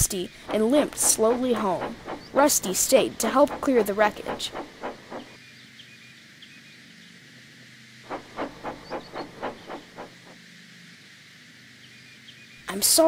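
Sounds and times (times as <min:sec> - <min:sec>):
steam locomotive chuffing: 0:00.0 - 0:05.4, 0:08.1 - 0:10.4
faint steady hum: 0:00.0 - 0:13.0.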